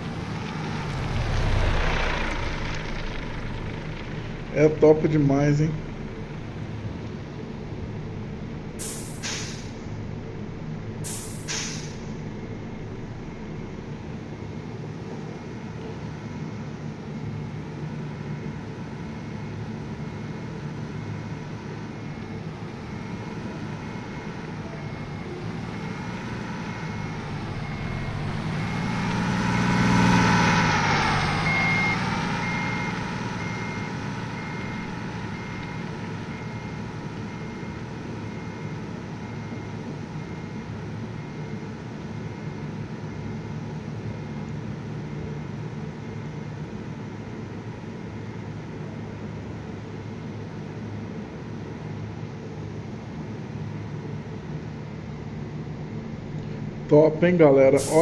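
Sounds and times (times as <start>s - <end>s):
truck diesel engine passing: 0.0s - 45.8s, 55.7s - 58.0s
faint high beep: 30.8s - 40.5s.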